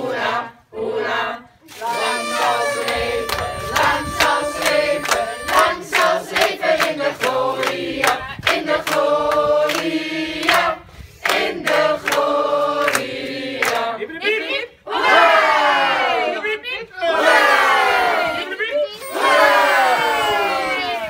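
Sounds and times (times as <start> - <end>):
adults and children singing: 0.0 - 16.4, 19.0 - 21.0
people clapping along: 1.7 - 14.0.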